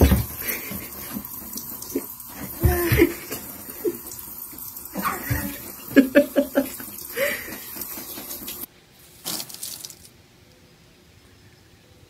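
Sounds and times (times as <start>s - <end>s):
tap water pouring into bathtub: 0.0s - 8.7s.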